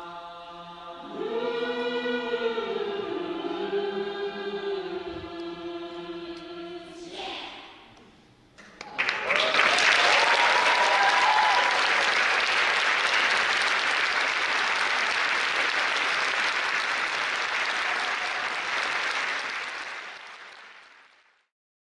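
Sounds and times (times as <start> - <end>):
audience applauding: 8.7 - 21.4.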